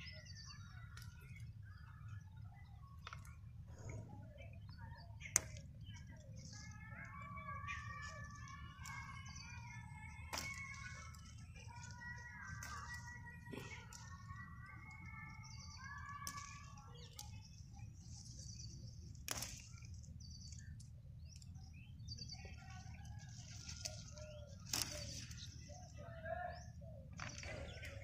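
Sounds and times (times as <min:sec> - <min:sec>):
birds chirping and singing: 0:00.0 - 0:28.0
bean pods snapping: 0:05.2 - 0:05.8, 0:06.4 - 0:21.6, 0:22.5 - 0:25.6.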